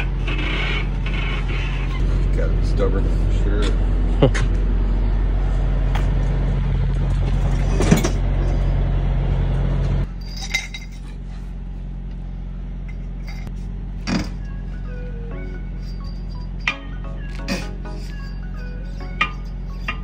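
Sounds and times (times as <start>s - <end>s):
tire tools clanking on metal: 7.2s - 8.7s, 10.0s - 11.3s, 12.8s - 14.6s, 15.5s - 20.0s.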